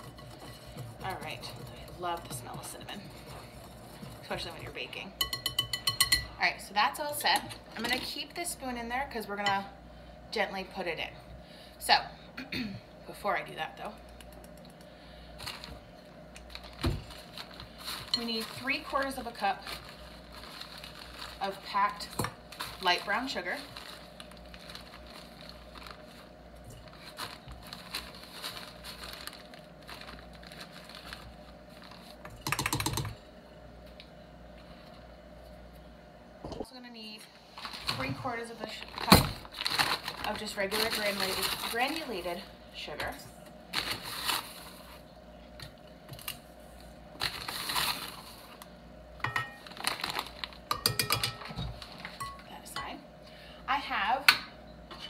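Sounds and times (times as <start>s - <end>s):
plastic bag crinkling: 15.4s - 15.8s, 16.4s - 32.2s, 37.5s - 42.4s, 43.7s - 45.0s, 47.2s - 48.6s, 49.6s - 50.7s
sugar crunching rustle: 15.4s - 32.3s, 37.4s - 42.5s, 46.2s - 48.7s, 49.4s - 50.7s.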